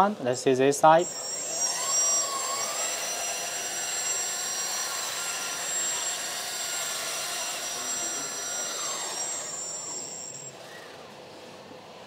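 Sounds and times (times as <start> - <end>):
hydraulic pump whining and hissing: 0.9 - 10.6.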